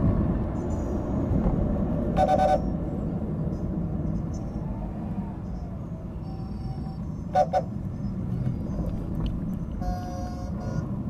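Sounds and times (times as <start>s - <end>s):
city traffic rumble: 0.0s - 11.0s
vehicle horn beeps: 2.2s - 2.7s, 6.2s - 7.9s, 9.8s - 10.9s.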